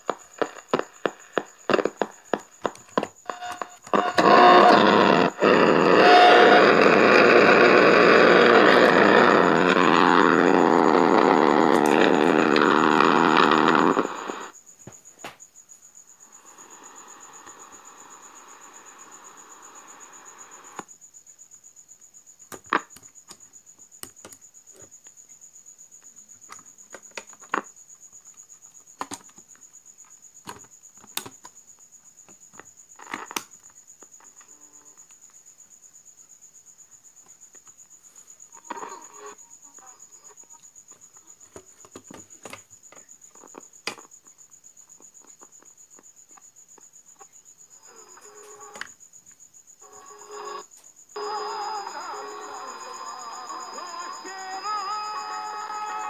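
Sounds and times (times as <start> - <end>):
crackly radio noise: 0.0 - 14.6, 38.5 - 40.7, 49.8 - 56.0
cricket chirping: 0.0 - 56.0.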